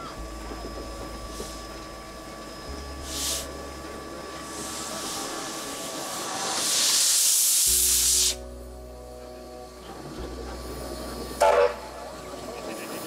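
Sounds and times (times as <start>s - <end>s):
steam locomotive hissing steam: 0.0s - 8.6s.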